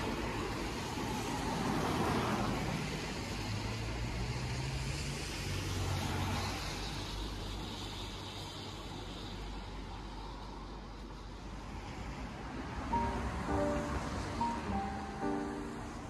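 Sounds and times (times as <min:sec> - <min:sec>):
tyres hissing on wet road: 0:00.0 - 0:16.0
low engine hum: 0:12.8 - 0:16.0.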